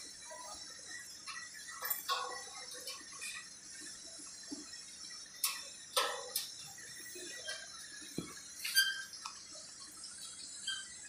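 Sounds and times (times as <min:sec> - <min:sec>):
metal parts clinking: 0:01.4 - 0:03.4.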